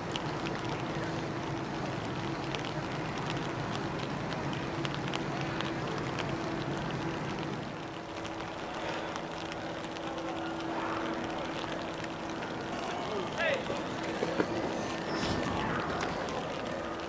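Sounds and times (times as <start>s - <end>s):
light rain falling: 0.0s - 17.0s
low machinery hum: 0.0s - 17.0s
sharp drip ticks: 0.0s - 17.0s.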